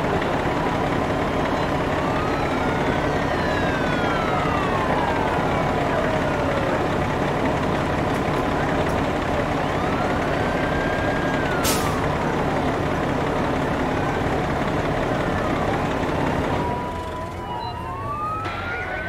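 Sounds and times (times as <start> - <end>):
diesel engines running: 0.0 - 19.0
siren wailing: 0.0 - 19.0
air brake hiss: 11.6 - 12.0.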